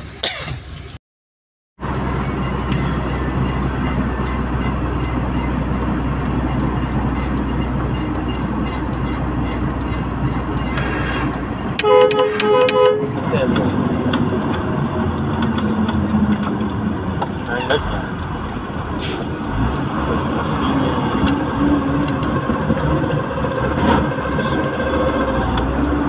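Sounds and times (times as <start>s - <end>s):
truck engine and road noise: 0.0s - 1.0s, 1.8s - 26.0s
horn short toots: 10.6s - 13.4s.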